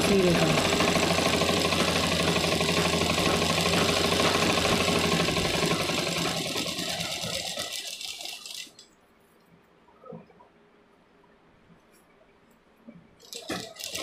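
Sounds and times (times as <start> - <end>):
sewing machine needle clatter: 0.0 - 8.8, 13.2 - 14.0.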